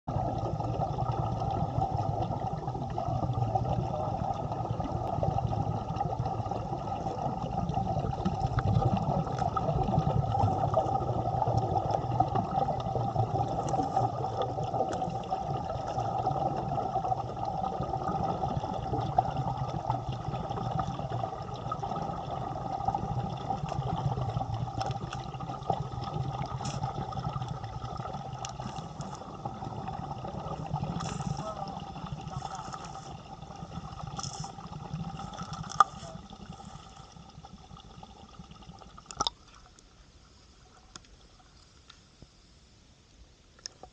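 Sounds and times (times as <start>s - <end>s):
underwater air bubbles rushing: 0.0s - 39.8s
faint clicks: 40.8s - 42.4s.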